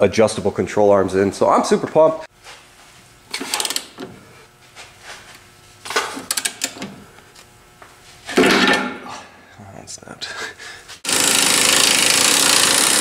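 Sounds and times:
ratchet wrench clicking: 0:03.3 - 0:04.0, 0:06.3 - 0:06.8, 0:11.1 - 0:13.0.

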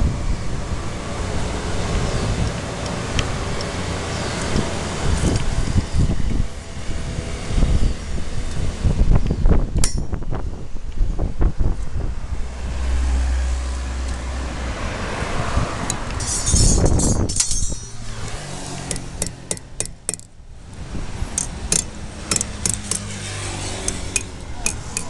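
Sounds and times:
sharp metal clicks and clinks: 0:09.8 - 0:10.2, 0:15.9 - 0:18.1, 0:21.4 - 0:23.1, 0:23.8 - 0:25.0
metal scraping rasp: 0:16.1 - 0:20.0, 0:21.4 - 0:25.0.

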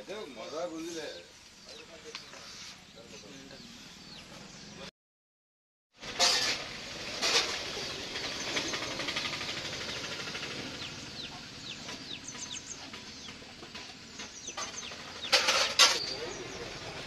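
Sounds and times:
birds chirping: 0:00.0 - 0:04.9, 0:07.6 - 0:17.0
bird trill: 0:08.1 - 0:13.4.

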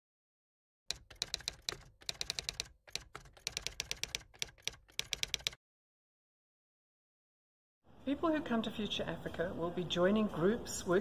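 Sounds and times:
keyboard key clicks: 0:00.9 - 0:05.6.

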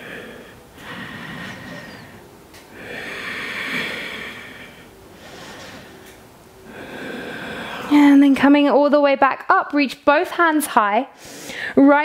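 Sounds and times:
woman breathing through nose: 0:00.0 - 0:08.0, 0:11.2 - 0:11.8.

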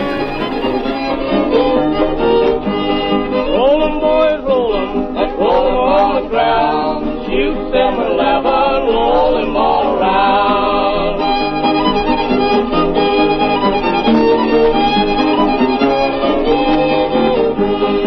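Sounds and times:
man singing: 0:00.0 - 0:01.3, 0:03.5 - 0:11.2
fiddle and guitar playing: 0:00.0 - 0:07.7, 0:09.9 - 0:18.0.

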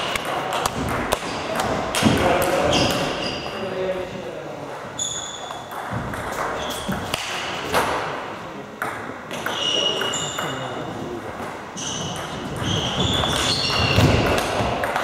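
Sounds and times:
short high squeaks: 0:05.0 - 0:05.7, 0:09.5 - 0:10.6, 0:11.8 - 0:14.2.

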